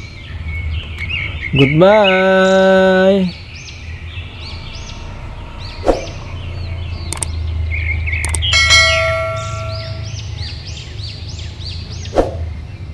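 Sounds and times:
bird-like chirps: 0.0s - 12.9s
steady low hum: 3.4s - 10.5s
sharp clicks: 7.1s - 7.4s, 8.2s - 8.5s
bell-like ding: 8.4s - 10.2s.

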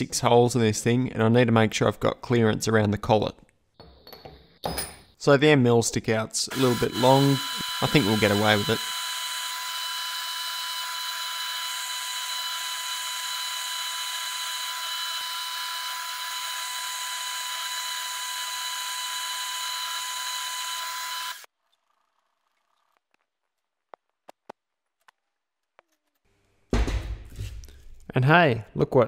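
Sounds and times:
milling machine spindle whining: 6.5s - 21.5s.

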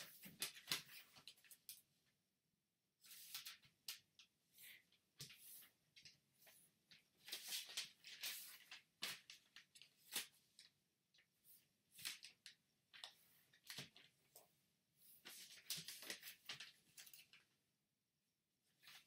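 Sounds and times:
paper rustling and crinkling: 0.0s - 1.8s, 3.0s - 10.8s, 15.1s - 17.4s.

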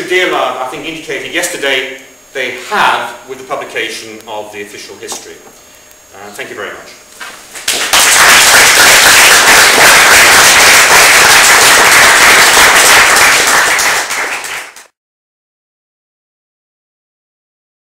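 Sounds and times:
audience applauding: 7.7s - 14.9s.

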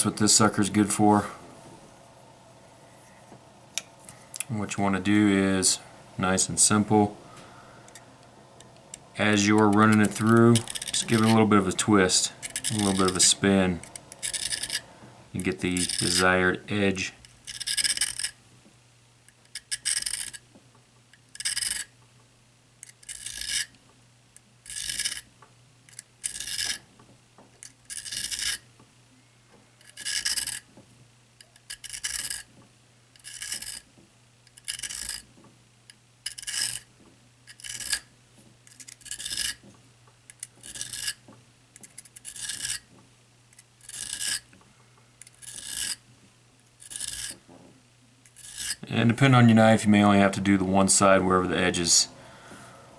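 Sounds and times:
knife rasping on sharpener: 9.4s - 14.8s, 15.8s - 16.3s, 23.0s - 23.7s, 26.2s - 26.8s, 27.9s - 28.6s, 33.2s - 33.8s, 34.6s - 35.2s, 36.3s - 36.8s, 37.5s - 38.0s, 38.7s - 39.6s, 40.5s - 41.2s, 42.1s - 42.8s, 43.8s - 44.4s, 45.2s - 46.0s, 46.8s - 47.4s, 48.3s - 48.8s.

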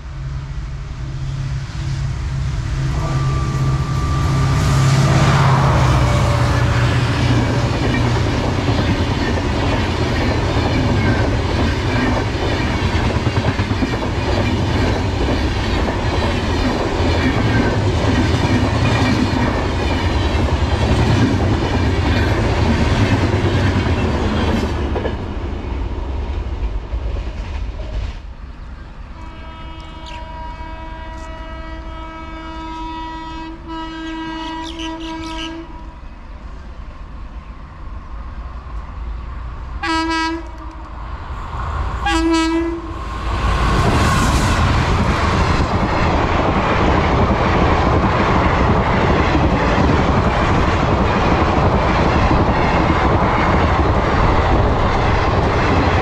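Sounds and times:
train passing with rumble: 0.0s - 56.0s
train horn blast: 2.6s - 8.0s, 29.2s - 36.1s, 39.8s - 40.9s, 42.0s - 43.0s.

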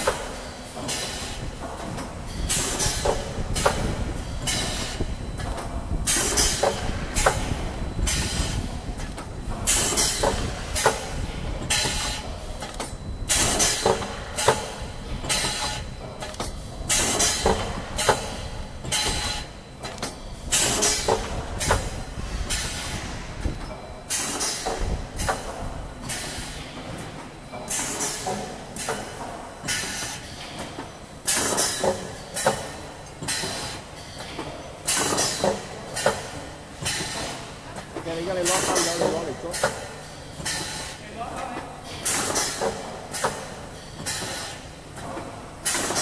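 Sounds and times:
pneumatic air hiss and clacks: 0.0s - 41.0s, 41.8s - 46.0s
low mechanical hum: 0.0s - 46.0s.

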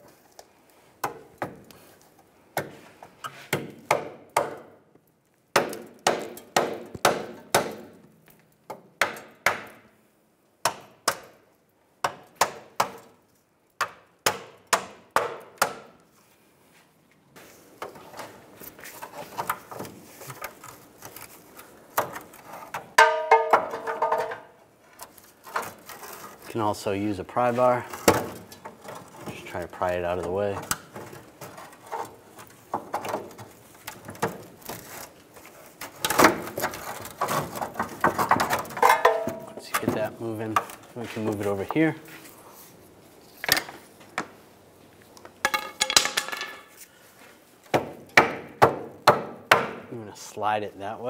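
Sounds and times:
rusty metal scraping and rattling: 34.7s - 41.9s.

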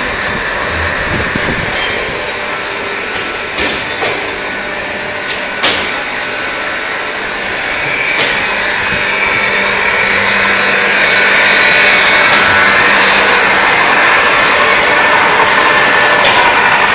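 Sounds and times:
machinery hissing: 0.0s - 2.7s
low machine hum: 0.0s - 16.9s.

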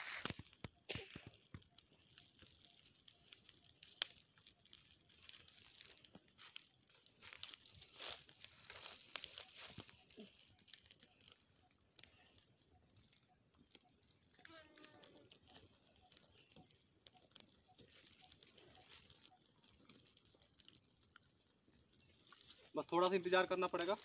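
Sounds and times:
leaf fire crackling and popping: 0.0s - 24.0s
footsteps on dry leaves: 4.9s - 11.1s.

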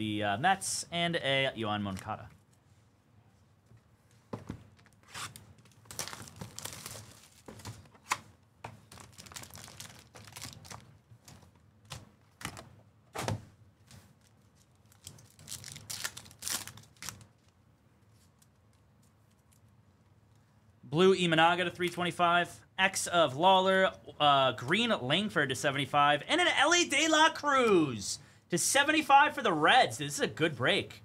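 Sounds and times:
packs ripping and crinkling: 4.8s - 7.8s, 8.9s - 10.9s, 14.2s - 17.5s.

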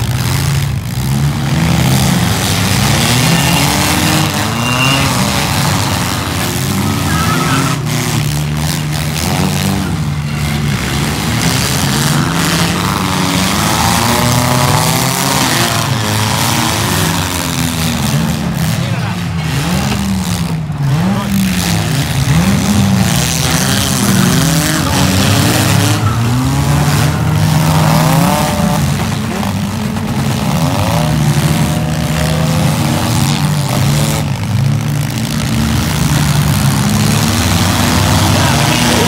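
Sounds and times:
car engines revving: 0.0s - 39.0s.

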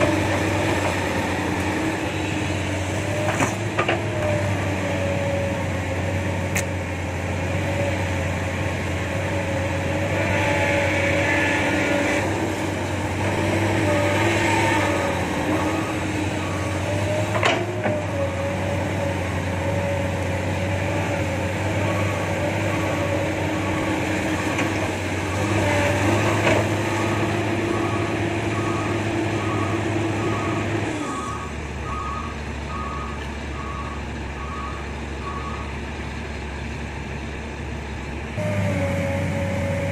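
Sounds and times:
excavator diesel engine: 0.0s - 39.9s
reversing alarm beeps: 15.7s - 16.9s, 21.9s - 24.6s, 26.9s - 35.8s.

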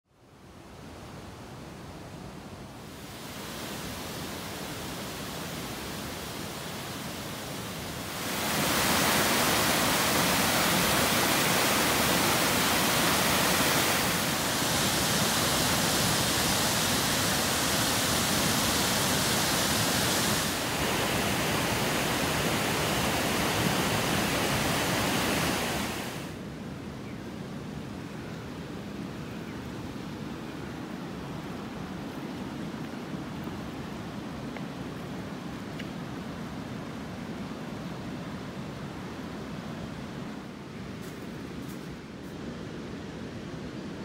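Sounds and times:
river rushing over a weir: 0.4s - 26.6s.

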